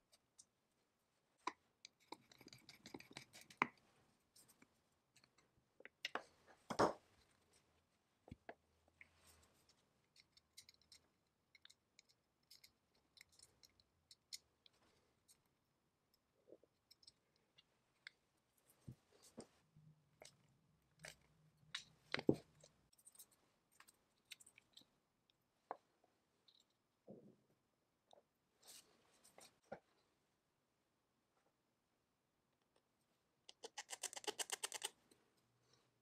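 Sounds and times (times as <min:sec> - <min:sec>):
small parts clicking and tapping: 0:10.1 - 0:15.4, 0:33.5 - 0:34.9.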